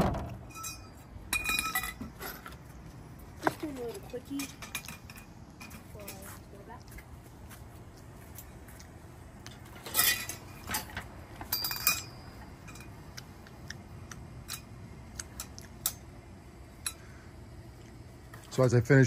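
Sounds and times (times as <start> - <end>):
metal tubes clinking and knocking: 0.4 - 2.6, 3.8 - 6.2, 9.5 - 13.0, 14.4 - 14.7, 16.8 - 17.0.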